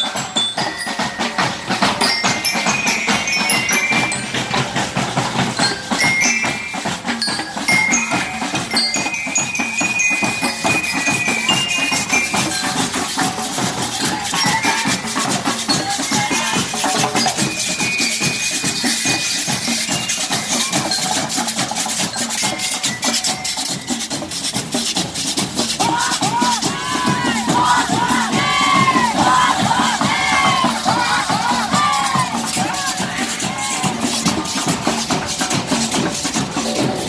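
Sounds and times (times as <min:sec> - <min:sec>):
bell-lyre melody: 0:00.0 - 0:25.7
marching drum beat: 0:00.0 - 0:37.0
crowd shouting: 0:13.8 - 0:17.2, 0:25.8 - 0:34.8.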